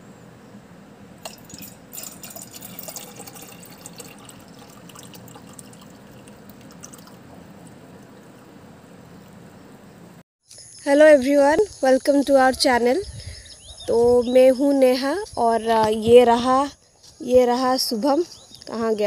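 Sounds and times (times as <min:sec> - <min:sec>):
water pouring into steel tumbler: 0:01.2 - 0:08.4.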